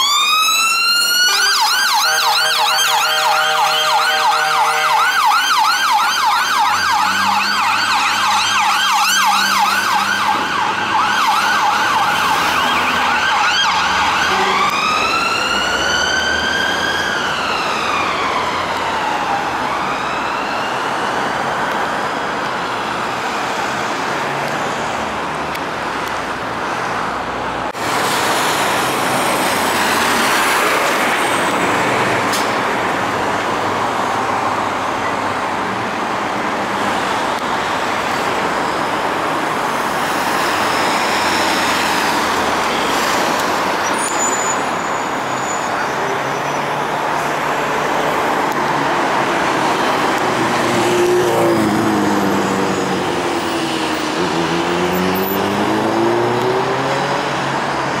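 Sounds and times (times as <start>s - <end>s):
fire engine siren: 0.0s - 26.8s, 27.7s - 58.0s
traffic noise: 0.0s - 58.0s
lorry engine passing: 47.4s - 57.7s.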